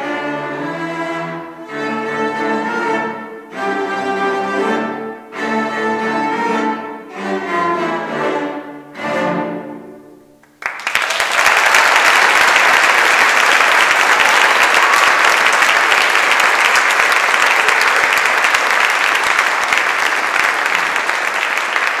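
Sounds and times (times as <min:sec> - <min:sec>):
audience applauding: 0:10.4 - 0:22.0.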